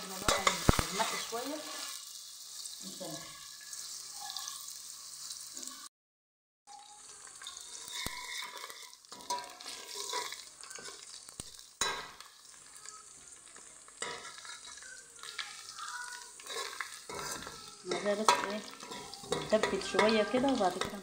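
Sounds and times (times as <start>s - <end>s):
onion sizzling in hot oil: 0.0s - 5.9s, 6.7s - 21.0s
metal spoon scraping pot: 7.4s - 11.0s, 14.0s - 14.9s, 16.4s - 21.0s
spoon clinking on pot: 7.4s - 11.0s, 16.4s - 21.0s.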